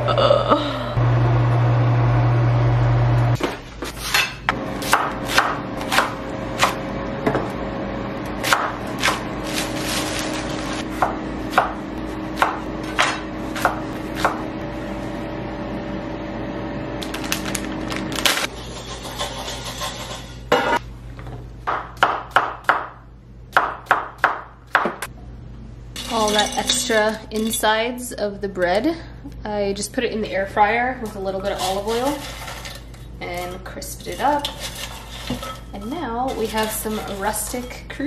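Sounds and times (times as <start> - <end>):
loud steady low hum: 0.0 - 3.4
knife chopping on wooden board: 4.8 - 6.8, 10.9 - 11.8, 12.4 - 14.4.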